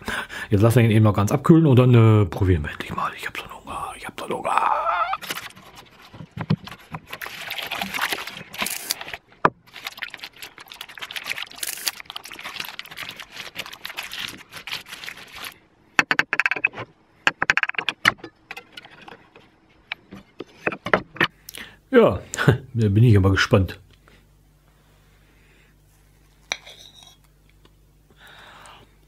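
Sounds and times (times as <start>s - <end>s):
baking paper crinkling: 5.2s - 15.6s.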